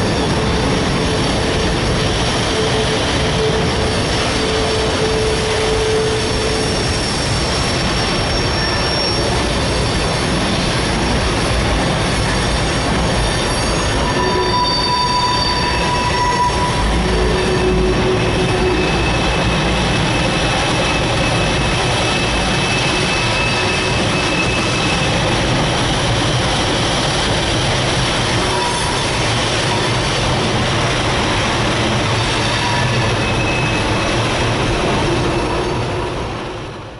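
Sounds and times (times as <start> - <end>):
freight train wheels rumbling: 0.0 - 36.9
high wheel squeals: 1.9 - 10.1, 12.3 - 25.7, 32.0 - 36.1.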